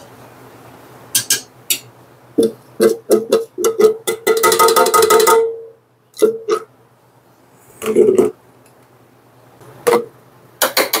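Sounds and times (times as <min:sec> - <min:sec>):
tin can clanking on metal pot: 0:02.4 - 0:05.6.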